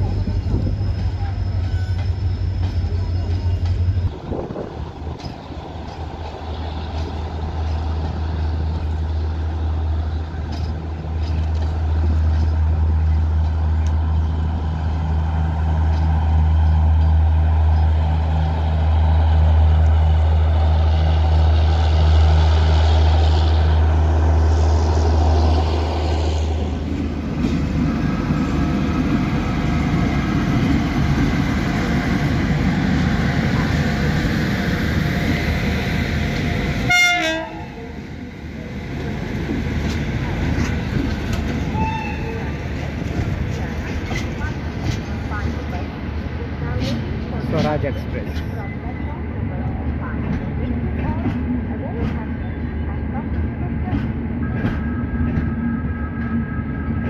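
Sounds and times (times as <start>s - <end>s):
deep diesel locomotive drone: 0.0s - 57.0s
rumble of passing train coaches: 0.0s - 57.0s
train horn: 36.8s - 37.8s, 41.7s - 42.5s.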